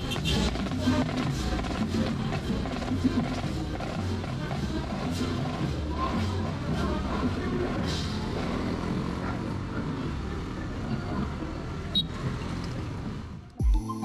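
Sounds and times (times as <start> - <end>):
music with heavy bass beat: 0.0 - 8.2, 13.6 - 14.0
vehicle engine rumble: 0.0 - 13.6.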